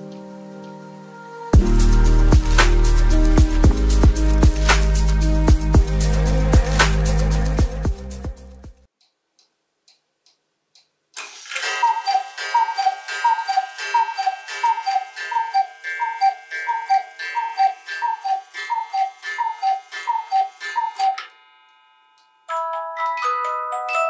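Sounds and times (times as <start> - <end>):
cuckoo clock call: 11.3 - 21.8
clock chime strikes: 11.6 - 24.0.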